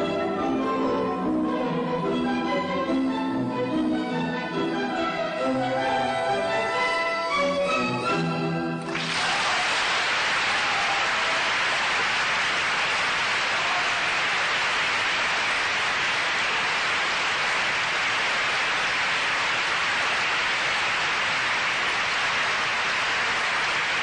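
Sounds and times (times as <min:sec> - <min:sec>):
audience applauding: 0:08.8 - 0:24.0.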